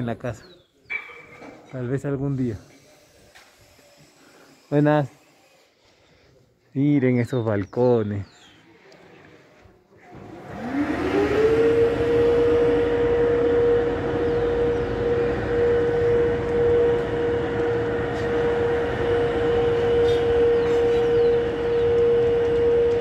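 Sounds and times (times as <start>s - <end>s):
loud rising whine: 10.2s - 23.0s.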